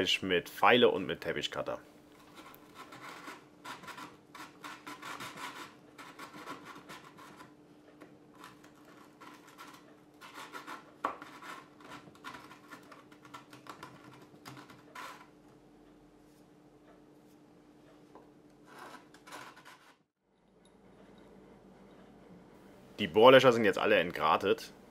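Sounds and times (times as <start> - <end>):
hand tool scraping plastic: 2.2 - 7.5, 8.4 - 15.3, 18.7 - 20.0.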